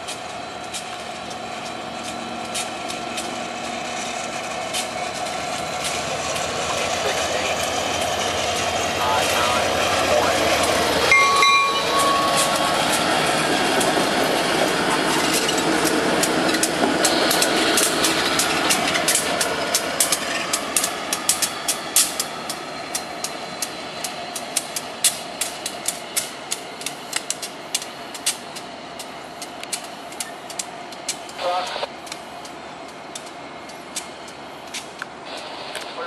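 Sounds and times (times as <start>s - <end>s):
diesel locomotive engine rumble: 0.0s - 36.0s
wheels clicking on rails: 0.0s - 36.0s.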